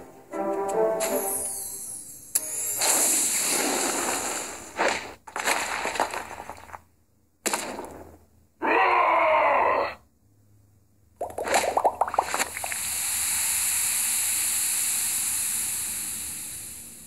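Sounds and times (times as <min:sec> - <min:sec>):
brick wall smashing and crumbling: 0:02.8 - 0:06.9.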